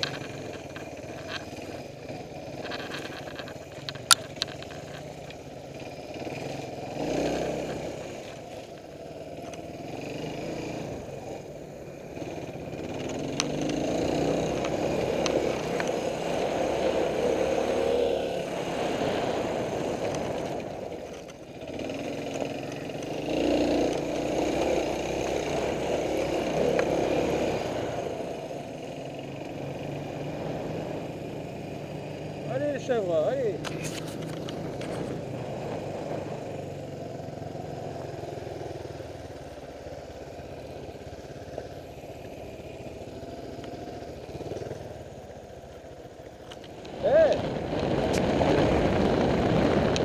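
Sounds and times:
sharp clicks: 0.0s - 5.4s
motorcycle engine revving: 0.0s - 50.0s.

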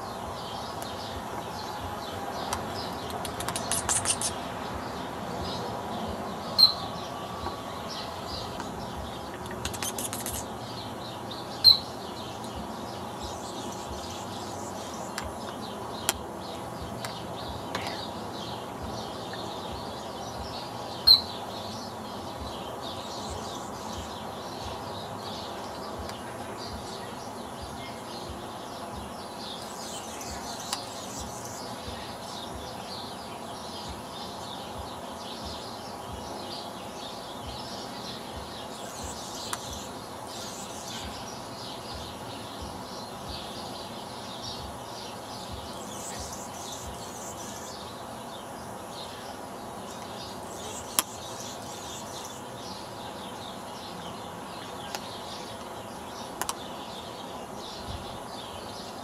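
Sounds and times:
small birds twittering: 0.0s - 59.0s
hummingbird sharp high chirp: 2.8s - 4.6s, 6.5s - 7.3s, 7.9s - 15.2s, 21.0s - 21.5s.

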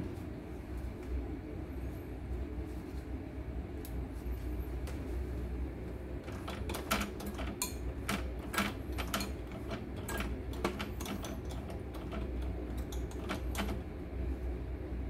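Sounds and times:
steady low hum: 0.0s - 15.0s
sewing machine mechanism clicking: 6.3s - 13.8s.

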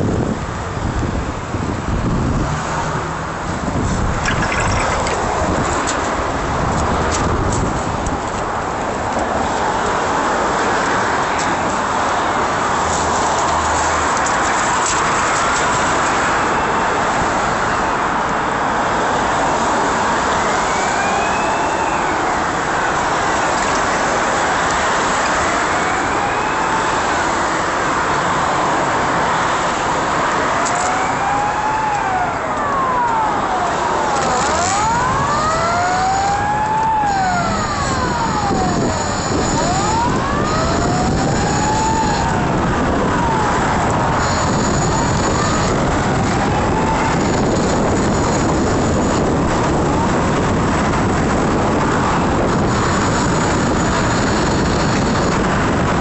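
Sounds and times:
city traffic: 0.0s - 56.0s
wind rushing: 3.5s - 8.0s
emergency siren wailing: 4.0s - 6.7s, 19.7s - 28.5s, 29.3s - 56.0s.

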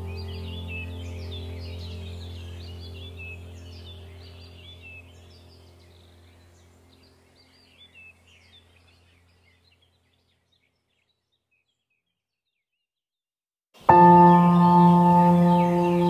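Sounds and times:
low steady hum: 0.0s - 10.4s, 13.9s - 16.0s
small birds chirping: 0.0s - 13.0s, 13.8s - 16.0s.

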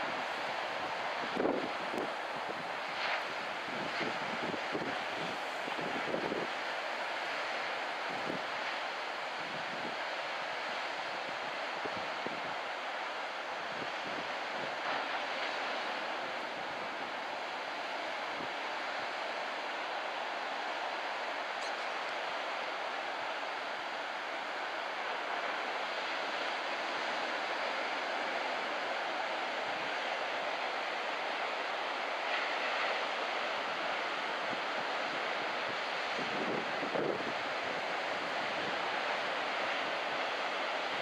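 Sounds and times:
wind noise: 0.0s - 6.6s, 35.7s - 39.2s
ocean surf breaking on beach: 0.0s - 41.0s.

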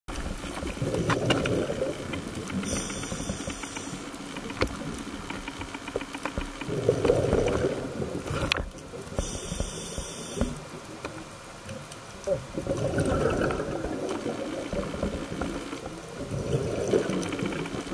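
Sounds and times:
exhaled bubbles underwater: 0.2s - 3.1s, 6.6s - 11.0s, 12.1s - 17.9s
sharp clicks: 1.2s - 7.6s
regulator hissing inhale: 2.6s - 4.2s, 9.2s - 10.7s.

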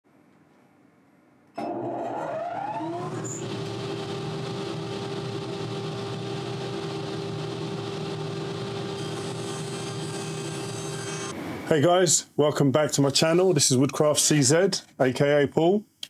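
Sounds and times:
power tool motor whining: 1.6s - 11.3s.

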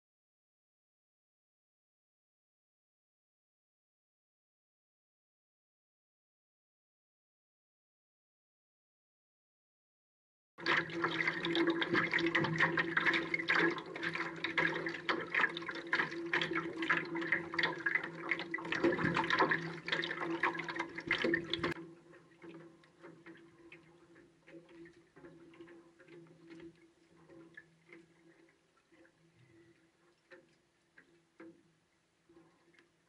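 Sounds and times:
water splashing against float: 10.6s - 33.0s.

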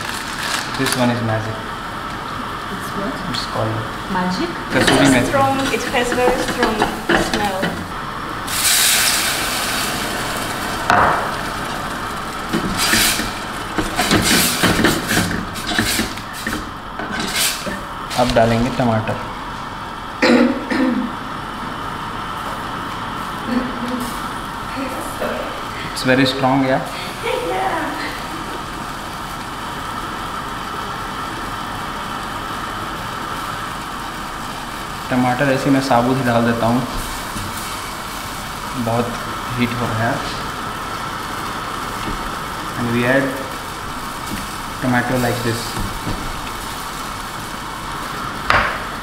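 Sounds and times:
onions frying in a pot: 0.0s - 20.2s, 21.0s - 49.0s
food sizzling: 0.0s - 49.0s
utensil knocking pot: 4.7s - 8.0s, 9.6s - 17.9s.

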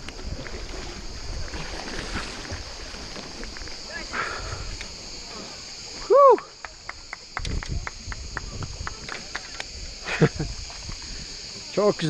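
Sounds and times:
insects chirring: 0.0s - 12.0s
person exclaiming: 6.0s - 6.4s.

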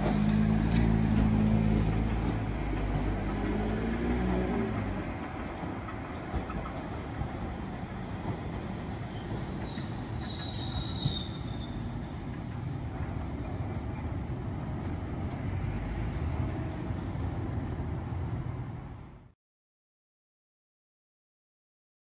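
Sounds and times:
streetcar rumble: 0.0s - 19.3s
wheels squealing on rails: 5.8s - 14.4s.

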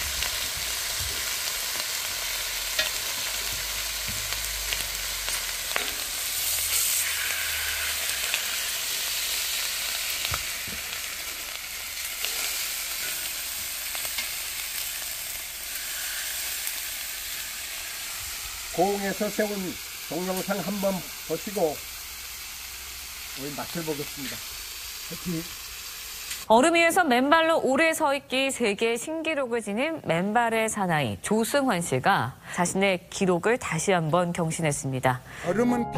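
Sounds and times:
meat sizzling on a griddle: 0.0s - 26.5s
tongs clicking against griddle: 2.8s - 3.0s.

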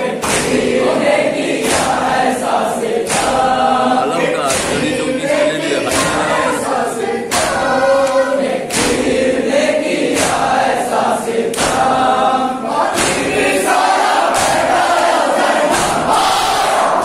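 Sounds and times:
men chanting in unison: 0.0s - 17.0s
chest-beating slaps: 0.2s - 0.7s, 3.0s - 6.5s, 7.3s - 9.1s, 10.0s - 10.5s, 11.5s - 12.0s, 12.9s - 13.4s.

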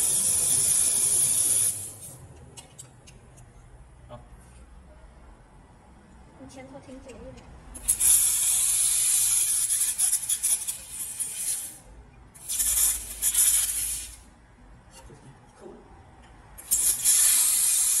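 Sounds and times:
sparks spraying: 0.0s - 2.1s, 7.8s - 11.8s, 12.4s - 14.2s, 16.6s - 18.0s
laser welder hissing on metal: 0.0s - 2.2s, 7.8s - 11.8s, 12.4s - 14.2s, 16.6s - 18.0s.

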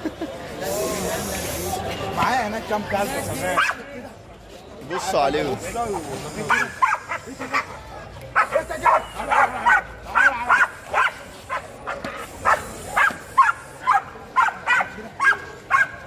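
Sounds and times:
dog barking rapidly: 6.5s - 7.3s, 8.4s - 16.0s.

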